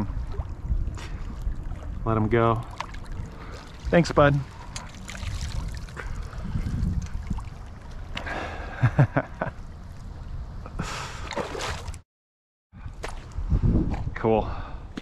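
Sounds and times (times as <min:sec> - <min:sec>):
low rumble: 0:00.0 - 0:08.2
water lapping against rocks: 0:00.0 - 0:08.8.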